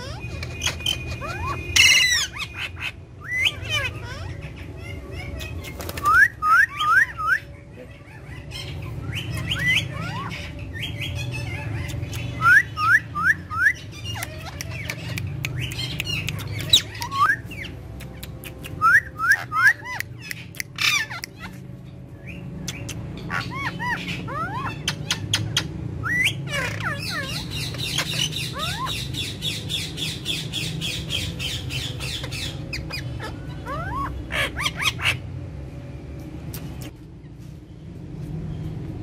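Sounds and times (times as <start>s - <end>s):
parakeets squawking: 0.0s - 35.9s
scattered clicks: 17.9s - 18.8s.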